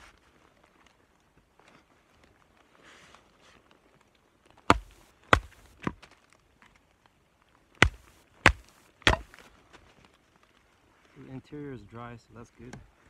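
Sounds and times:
baton knocking on knife spine: 0:04.7 - 0:06.0, 0:07.8 - 0:09.3.

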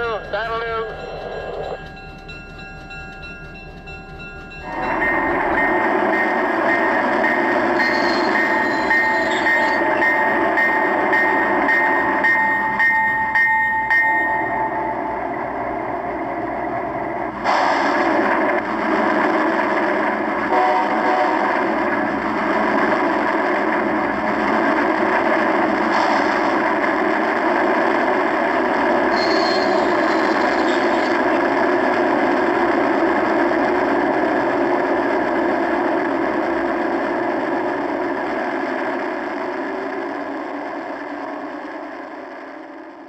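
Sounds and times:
diesel locomotive engine running: 0:00.0 - 0:43.0
short high squeal: 0:07.8 - 0:09.8, 0:29.1 - 0:30.8.

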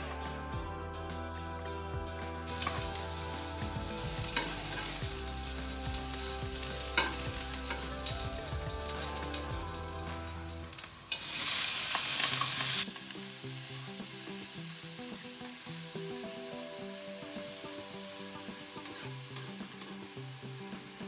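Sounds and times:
loud burst of sizzling: 0:02.2 - 0:21.0
ginger frying in hot oil: 0:02.4 - 0:21.0
spatula scraping wok: 0:02.5 - 0:12.9, 0:18.5 - 0:21.0.

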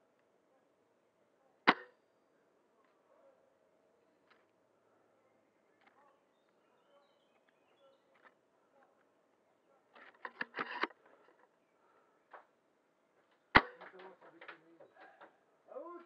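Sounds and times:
faint bird chirps: 0:04.8 - 0:08.9
rifle handling rustles and clicks: 0:10.0 - 0:11.6.

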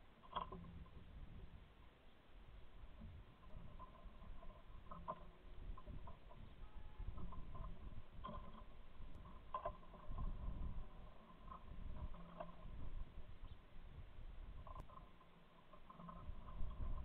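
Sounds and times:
wind buffeting microphone: 0:02.5 - 0:14.9, 0:15.9 - 0:17.0.

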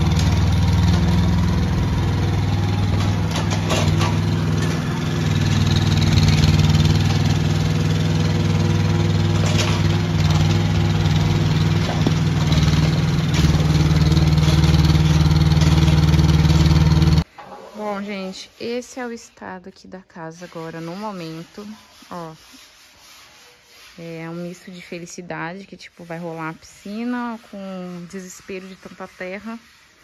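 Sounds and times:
diesel engine running: 0:00.0 - 0:17.2.

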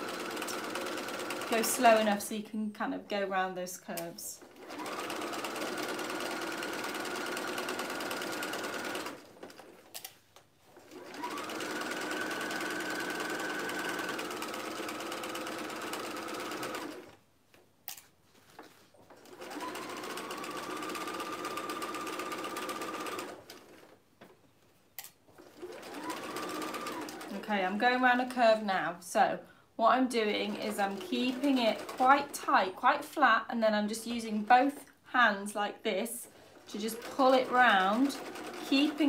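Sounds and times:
sewing machine stitching: 0:00.0 - 0:02.2, 0:04.0 - 0:10.0, 0:10.6 - 0:17.2, 0:19.1 - 0:24.0, 0:25.3 - 0:28.6, 0:30.2 - 0:32.9, 0:36.2 - 0:39.0.

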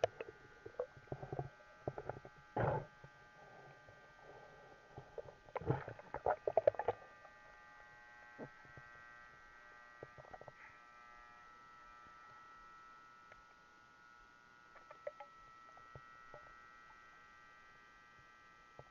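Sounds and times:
underwater clicks and knocks: 0:00.0 - 0:03.2, 0:05.0 - 0:07.3, 0:14.8 - 0:16.5
electronic hum: 0:00.0 - 0:18.9.

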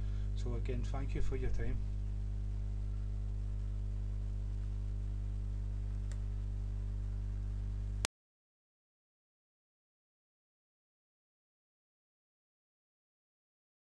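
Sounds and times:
electrical mains hum: 0:00.0 - 0:08.1
faint click: 0:05.9 - 0:06.3.

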